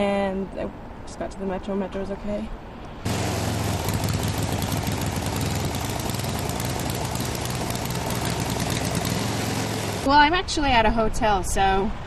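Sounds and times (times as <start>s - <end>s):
auger churning through snow: 3.1s - 10.1s
snowblower running: 3.1s - 10.1s.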